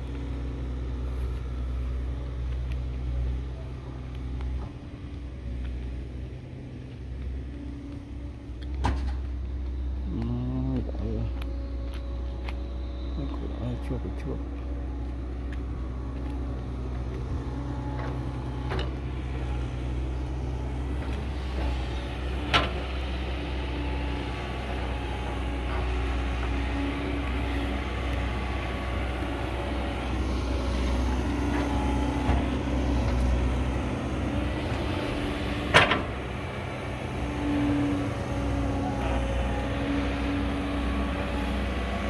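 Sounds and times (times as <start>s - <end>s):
excavator diesel engine running: 0.0s - 42.0s
humming tone: 7.7s - 16.1s.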